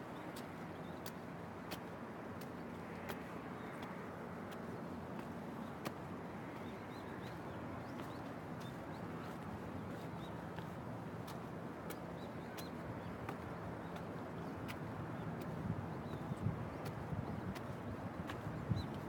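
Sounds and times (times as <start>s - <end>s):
steady outdoor hiss: 0.0s - 16.0s
small birds chirping: 5.6s - 19.0s.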